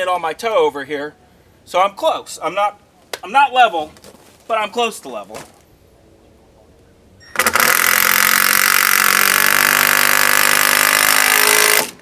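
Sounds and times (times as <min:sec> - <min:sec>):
cordless drill driving screw: 0:07.3 - 0:12.0.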